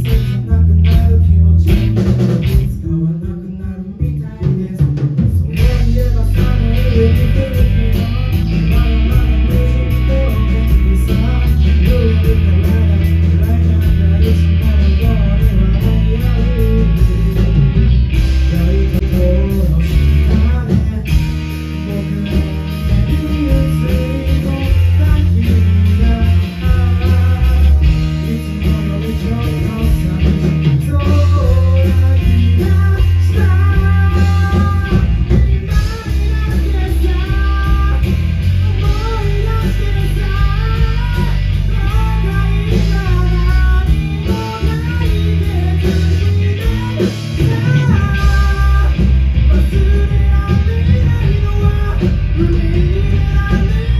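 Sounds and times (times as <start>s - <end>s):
lead vocalist singing: 0.0s - 53.9s
live rock band playing: 0.0s - 53.9s.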